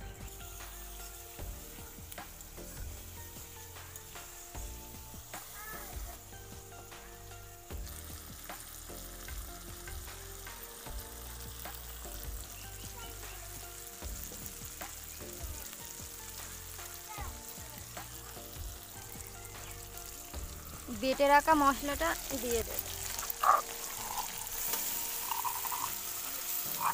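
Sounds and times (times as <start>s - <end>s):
onion and tomato sizzling in oil: 0.0s - 26.9s
metal spatula scraping a pan: 23.0s - 26.9s.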